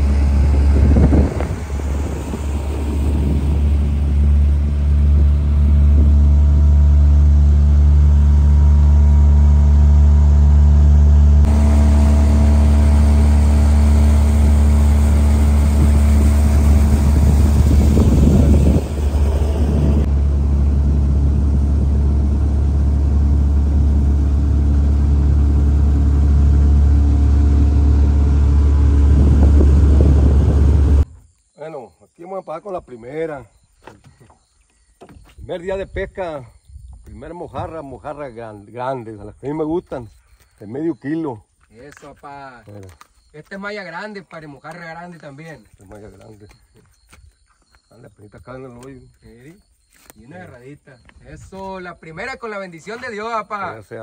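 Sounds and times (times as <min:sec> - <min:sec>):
rushes of wind or water: 0:00.0 - 0:06.9, 0:14.1 - 0:31.1
outboard motor droning: 0:00.0 - 0:31.0.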